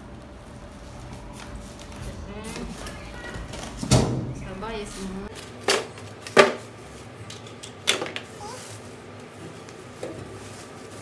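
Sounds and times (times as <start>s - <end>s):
plastic wrapping rustling and crackling: 0.0s - 3.9s, 8.1s - 11.0s.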